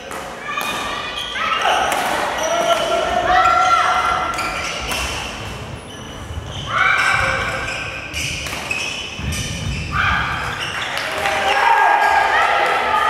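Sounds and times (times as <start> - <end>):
sneaker squeaking on gym floor: 0.9 - 11.2
rackets hitting shuttlecocks: 4.8 - 5.5, 8.3 - 9.5.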